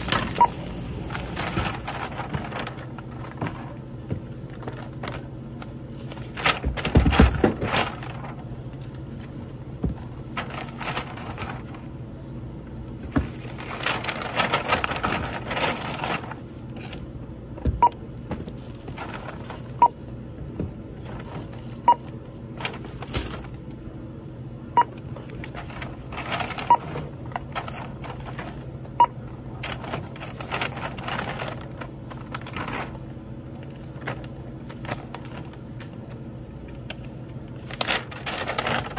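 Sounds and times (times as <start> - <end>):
paper bag rustling: 0.0 - 12.0, 13.0 - 17.1, 18.3 - 23.7, 25.1 - 36.2, 37.5 - 38.9
steady low hum: 0.0 - 38.9
barcode scanner beeping: 0.3 - 0.7.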